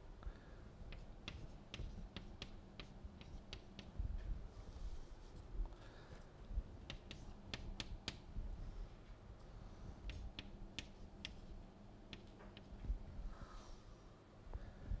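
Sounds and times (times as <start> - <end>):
chalk clicking on blackboard: 0.9 - 3.9, 6.8 - 8.2, 10.1 - 11.5, 12.1 - 12.7.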